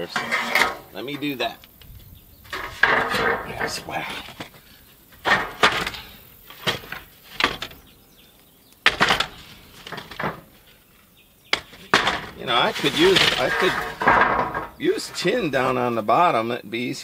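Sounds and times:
wooden shutters knocking: 11.5s - 15.3s.

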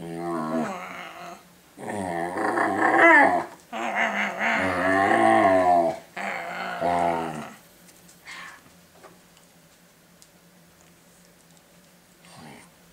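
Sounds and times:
puppy moaning: 0.0s - 7.6s.

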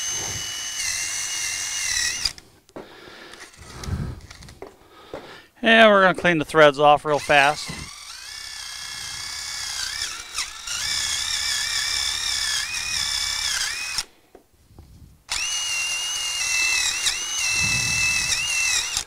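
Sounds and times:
power wire wheel whining: 0.0s - 2.5s, 3.2s - 4.7s, 7.0s - 14.1s, 15.3s - 19.0s.

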